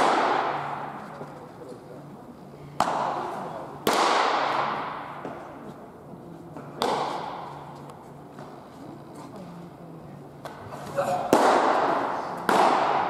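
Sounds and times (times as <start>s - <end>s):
baseballs smacking into mitts: 2.8s - 5.6s, 6.6s - 7.6s, 11.3s - 13.0s.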